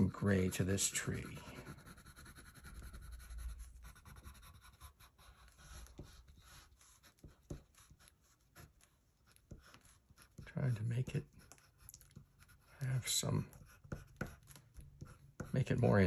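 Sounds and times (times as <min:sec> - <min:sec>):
pencil scratching on paper: 0:00.0 - 0:16.0.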